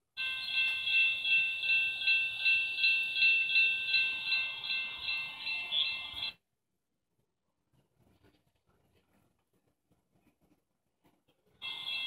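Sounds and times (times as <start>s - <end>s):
crossing warning bell ringing: 0.2s - 6.4s, 11.6s - 12.0s.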